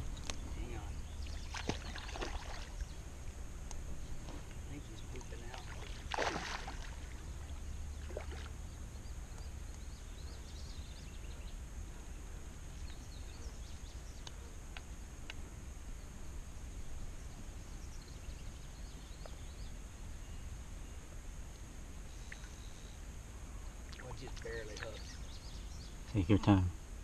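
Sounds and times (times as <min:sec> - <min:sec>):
faint chirps: 0:00.0 - 0:26.7
steady high hiss: 0:00.0 - 0:27.0
small water splash: 0:01.2 - 0:02.9, 0:05.5 - 0:08.6.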